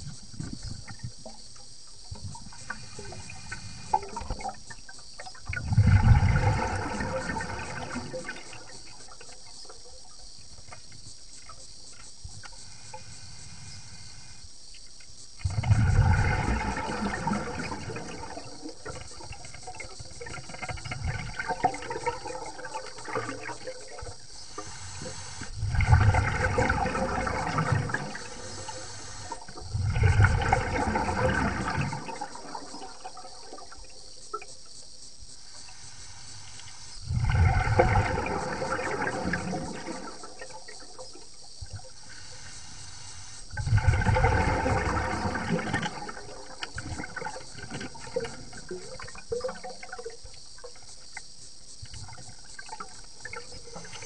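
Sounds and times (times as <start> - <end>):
faint steady hiss: 0.0 - 54.0
underwater breath bubbling: 2.2 - 4.8, 5.5 - 10.0, 15.4 - 34.5, 35.4 - 50.0, 51.9 - 54.0.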